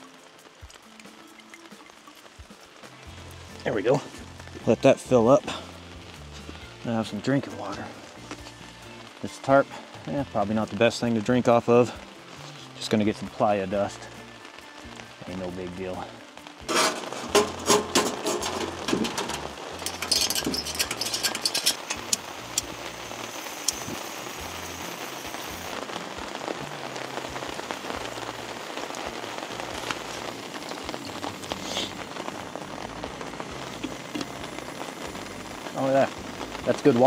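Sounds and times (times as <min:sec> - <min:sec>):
rain on a tarp: 0:00.0 - 0:37.0
sharp clicks and knocks: 0:16.7 - 0:22.7.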